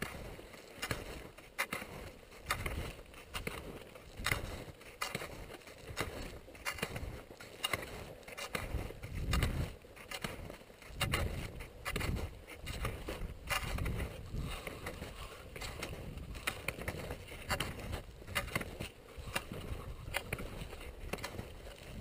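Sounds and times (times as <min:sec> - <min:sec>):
skis scraping over hard snow: 0:00.0 - 0:22.0
wind buffeting microphone: 0:08.6 - 0:09.8, 0:10.9 - 0:22.0.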